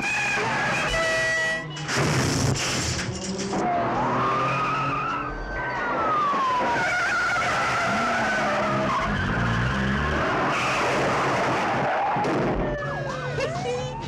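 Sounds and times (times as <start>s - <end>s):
car tyres squealing: 0.0s - 12.4s
engines revving hard: 1.9s - 12.6s.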